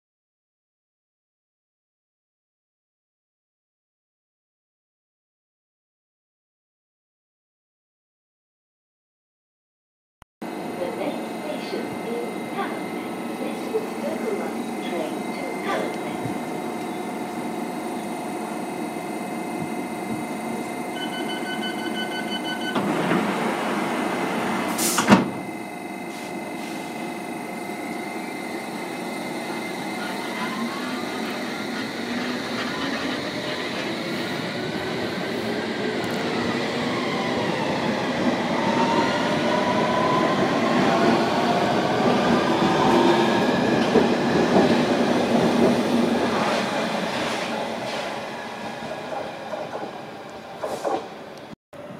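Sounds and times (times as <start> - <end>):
electric train motors whining: 10.5 - 46.3
door-closing warning beeps: 20.9 - 22.9
train doors shutting knock: 24.4 - 25.5, 50.6 - 51.2.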